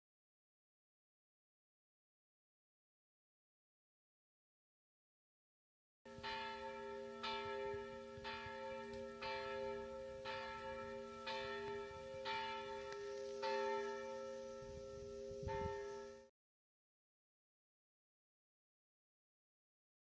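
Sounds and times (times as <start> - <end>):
church bell tolling: 6.1 - 16.3.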